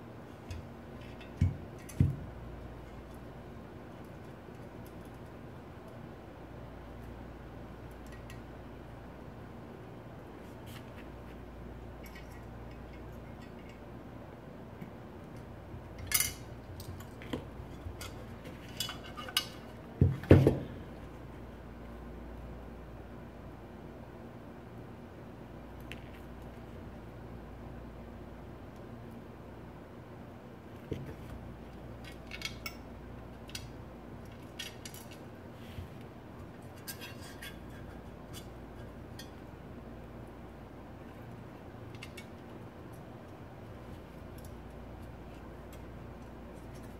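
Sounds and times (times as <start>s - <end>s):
low steady hum: 0.0s - 46.9s
metal parts clicking and clinking: 16.0s - 17.2s, 33.4s - 35.2s.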